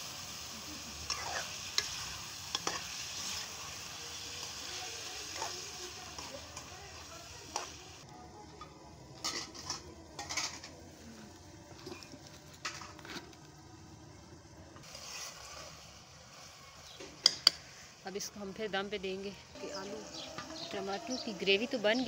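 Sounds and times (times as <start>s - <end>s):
faint food sizzling: 0.0s - 22.0s
metal spatula scraping a pot: 1.0s - 3.8s, 4.4s - 6.7s, 9.2s - 10.8s, 14.8s - 15.8s.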